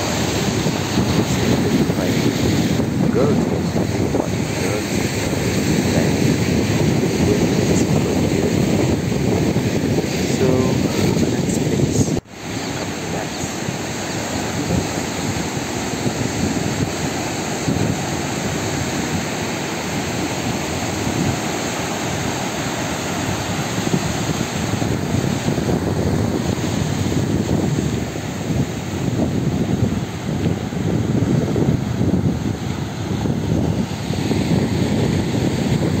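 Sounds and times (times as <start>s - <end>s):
sea surf breaking on shore: 0.0s - 36.0s
wind rumbling on microphone: 0.0s - 36.0s.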